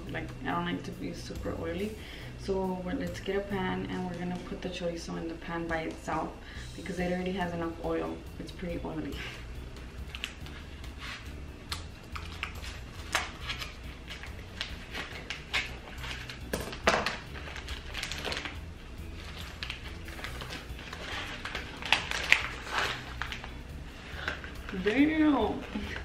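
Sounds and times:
plastic crinkling: 12.1s - 26.0s.

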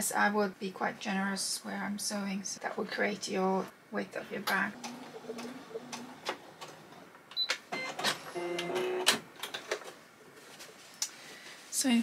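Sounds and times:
sewing machine stitching: 4.5s - 7.0s.

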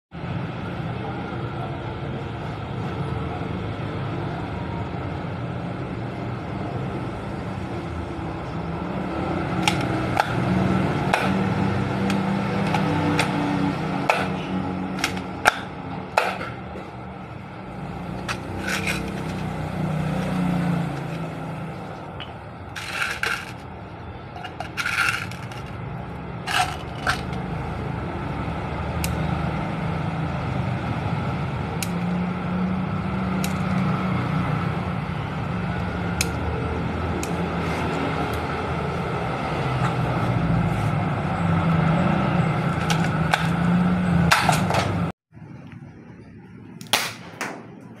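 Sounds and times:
pistol clicks and scrapes: 9.6s - 10.4s, 14.1s - 16.5s, 18.2s - 21.3s, 24.4s - 25.8s, 26.5s - 27.4s.

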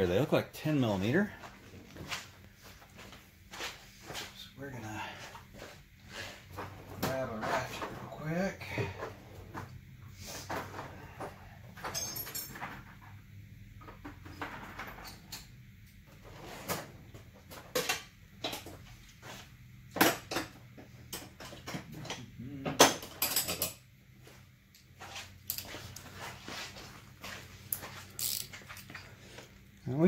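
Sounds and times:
metal tools clanking in a drawer: 11.7s - 13.1s, 22.9s - 23.8s.

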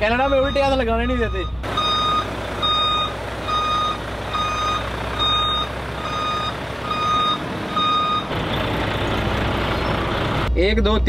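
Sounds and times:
truck reversing alarm beeping: 0.0s - 10.4s
truck engine running: 0.0s - 10.6s.

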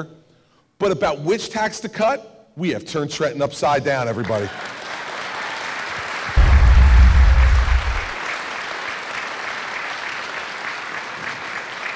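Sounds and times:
audience applauding: 4.3s - 11.9s
deep bass musical hit: 6.4s - 8.2s.

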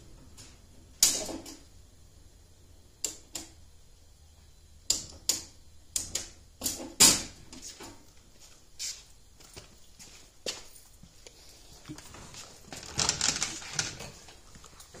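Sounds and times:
sharp clicks and knocks: 4.9s - 8.0s.

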